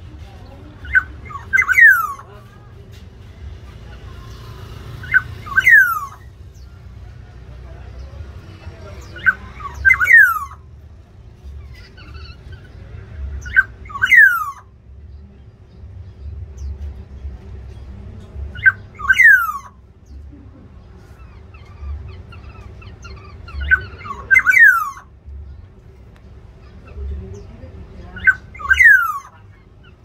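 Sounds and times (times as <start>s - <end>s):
bird giving harsh falling calls: 5.0s - 6.3s, 13.5s - 14.7s, 18.6s - 19.8s, 21.2s - 25.2s, 28.2s - 30.0s.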